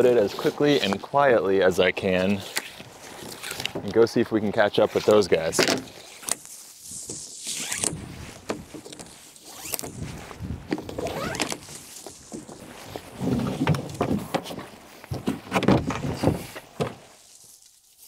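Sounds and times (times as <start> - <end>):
kayak knocking and scraping on rack: 5.5 - 17.2.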